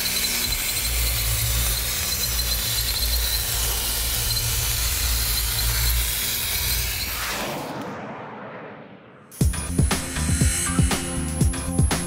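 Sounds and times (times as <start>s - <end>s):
low hum: 1.0s - 12.0s
loud spark hiss: 9.3s - 12.0s.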